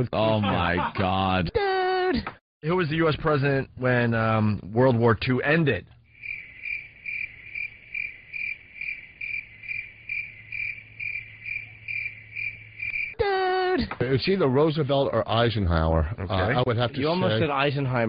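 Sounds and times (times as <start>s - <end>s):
cricket chirping: 6.0s - 13.9s.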